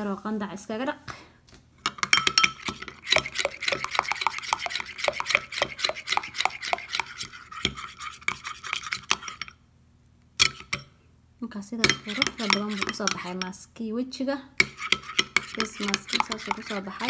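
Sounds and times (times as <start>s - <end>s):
metal spoon stirring in glass bowl: 1.8s - 9.6s, 10.4s - 10.9s, 11.8s - 13.6s, 14.6s - 17.0s.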